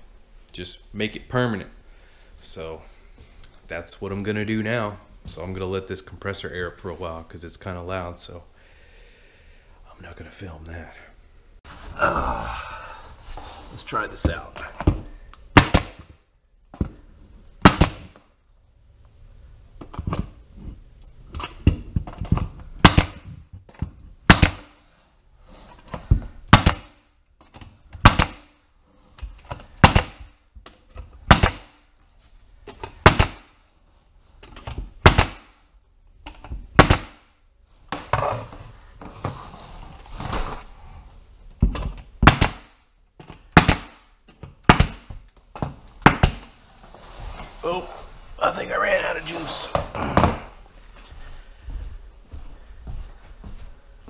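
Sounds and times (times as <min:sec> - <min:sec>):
nail gun firing: 0:15.5 - 0:16.1, 0:17.6 - 0:18.2, 0:22.8 - 0:23.3, 0:24.3 - 0:24.8, 0:26.5 - 0:27.0, 0:28.0 - 0:28.5, 0:29.8 - 0:30.3, 0:31.2 - 0:31.8, 0:33.0 - 0:33.6, 0:35.0 - 0:35.6, 0:36.8 - 0:37.3, 0:42.2 - 0:42.8, 0:43.5 - 0:45.1, 0:46.0 - 0:46.5.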